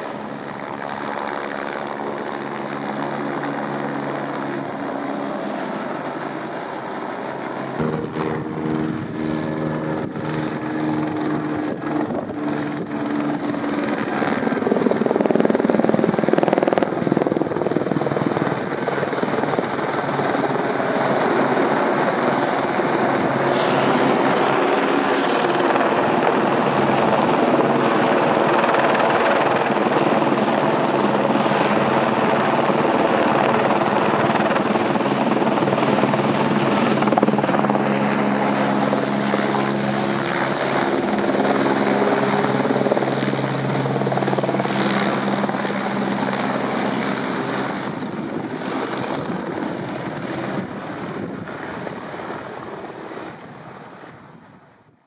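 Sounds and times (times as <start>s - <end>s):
helicopter rotor and turbine: 0.0s - 55.0s
turbine whine: 7.8s - 15.8s, 19.6s - 39.9s.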